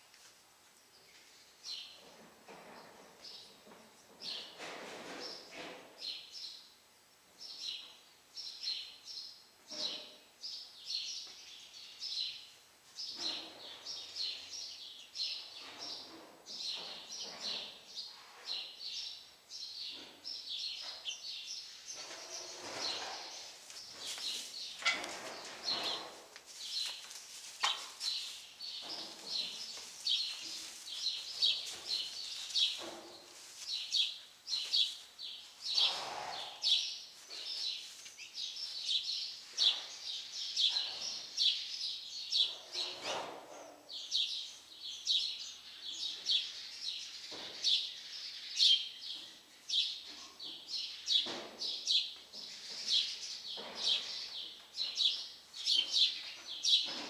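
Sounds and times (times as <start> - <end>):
small birds chirping: 7.4 - 43.3, 43.9 - 57.0
soft rustling: 22.0 - 36.1, 37.0 - 39.0.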